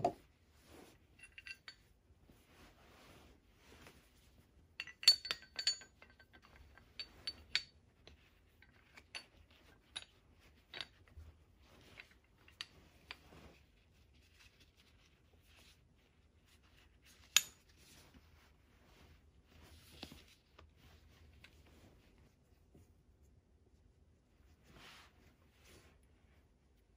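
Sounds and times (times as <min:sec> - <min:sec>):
metal hook hardware clinking: 0:01.2 - 0:01.8, 0:04.8 - 0:07.7.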